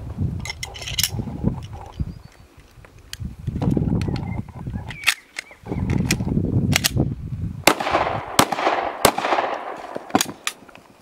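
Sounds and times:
metal clicks of pistol parts: 0:00.4 - 0:02.0, 0:04.9 - 0:07.0
pistol shots with echo: 0:07.7 - 0:10.6.

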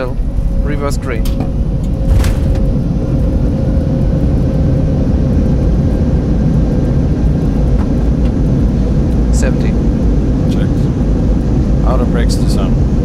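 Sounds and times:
jet engines rumbling in reverse thrust: 0:00.0 - 0:13.0.

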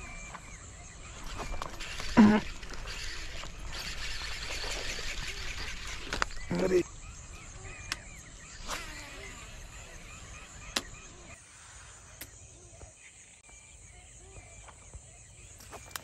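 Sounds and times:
birds chirping and calling: 0:00.0 - 0:16.0
faint outdoor ambience: 0:00.0 - 0:16.0.

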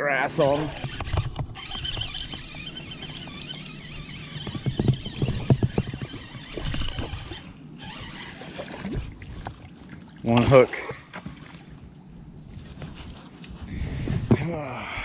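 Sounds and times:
rod and reel clicks: 0:00.3 - 0:09.5
fishing reel cranking: 0:00.4 - 0:08.8.

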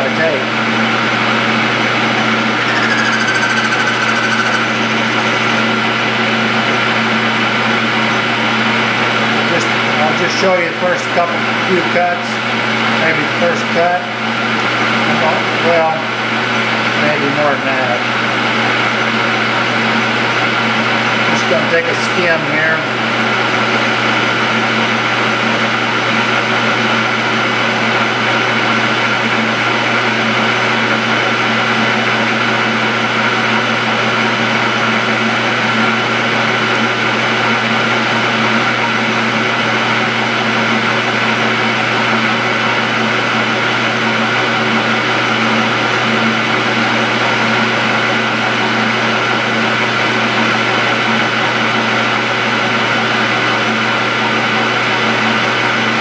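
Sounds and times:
metal lathe running: 0:00.5 - 0:10.5, 0:23.0 - 0:56.0.

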